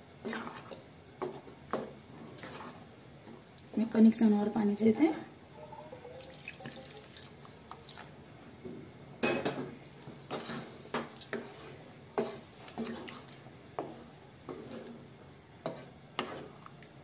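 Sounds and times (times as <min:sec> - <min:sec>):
spatula scraping and knocking pan: 0:00.2 - 0:02.9, 0:10.3 - 0:13.2, 0:13.8 - 0:15.0, 0:15.6 - 0:16.6.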